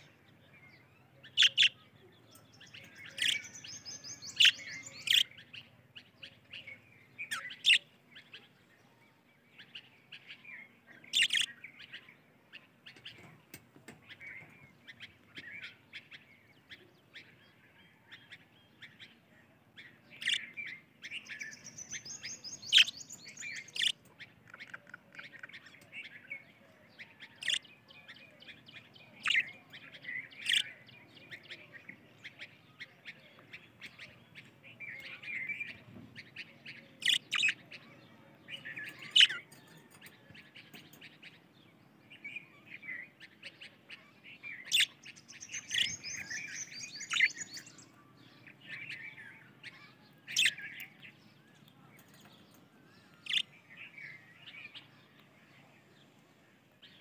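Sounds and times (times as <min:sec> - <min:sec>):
budgerigars twittering: 0:01.2 - 0:01.9, 0:02.7 - 0:05.7, 0:11.1 - 0:12.0, 0:20.2 - 0:25.6, 0:27.4 - 0:27.6, 0:29.2 - 0:30.8, 0:31.6 - 0:39.5, 0:42.8 - 0:51.2, 0:53.2 - 0:54.9.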